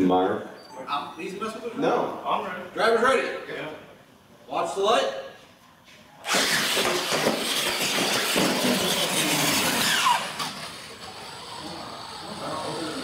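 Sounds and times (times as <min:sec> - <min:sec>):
electric motors whining: 0:06.2 - 0:13.0.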